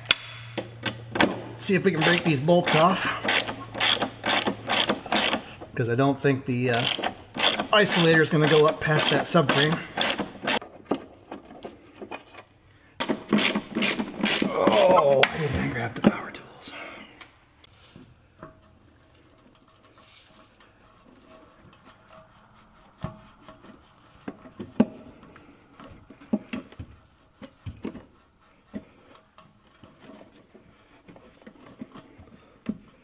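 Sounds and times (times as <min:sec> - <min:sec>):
ratchet clicking: 0:01.9 - 0:05.5, 0:06.7 - 0:10.6.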